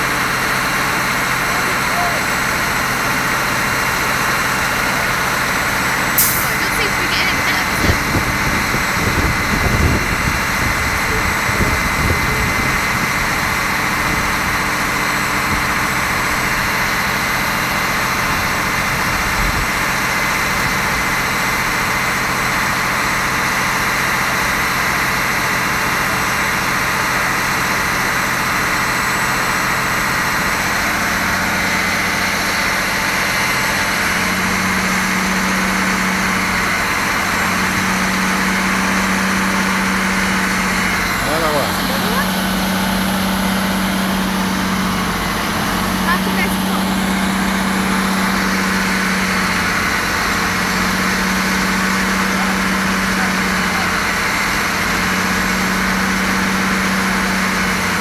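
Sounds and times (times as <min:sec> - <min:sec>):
fire engine running: 0:00.0 - 0:58.0.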